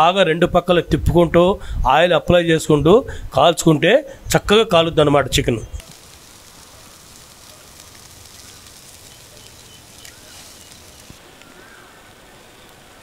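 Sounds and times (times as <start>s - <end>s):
oil crackling on coals: 4.2s - 13.0s
chickens sizzling on charcoal grill: 5.8s - 12.8s.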